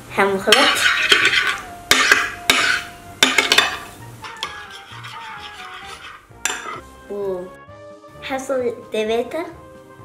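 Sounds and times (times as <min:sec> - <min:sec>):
metal spoon scraping glass bowl: 0:00.6 - 0:01.6, 0:04.2 - 0:06.8
background music: 0:01.2 - 0:10.0.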